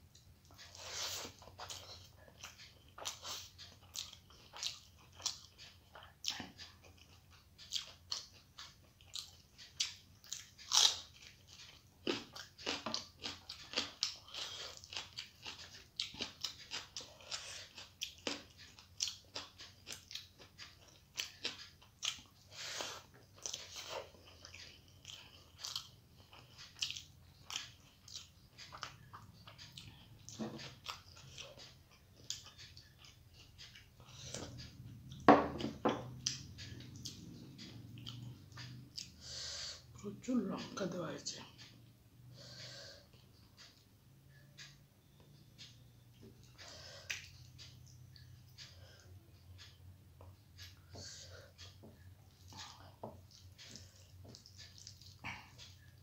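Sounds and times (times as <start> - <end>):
person chewing food: 0.0 - 40.0, 41.6 - 56.0.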